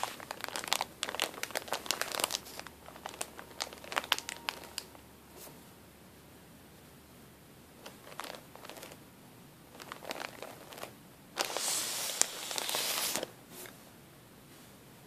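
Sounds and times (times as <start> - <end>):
plastic bag crinkling: 0.0 - 5.0, 7.8 - 9.0, 9.7 - 13.3.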